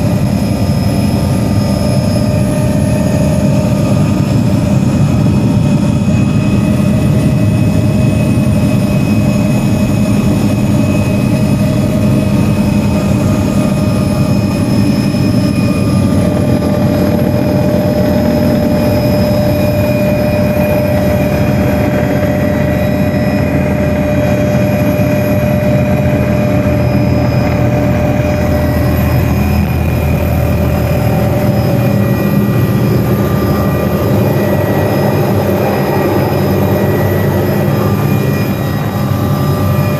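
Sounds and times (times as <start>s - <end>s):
helicopter rotor and engine drone: 0.0s - 39.9s
thin steady whines: 0.0s - 39.9s.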